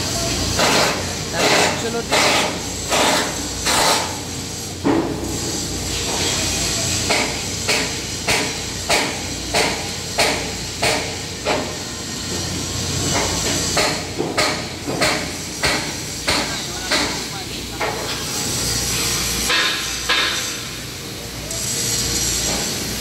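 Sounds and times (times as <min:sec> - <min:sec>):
welding arc hiss: 0:00.0 - 0:23.0.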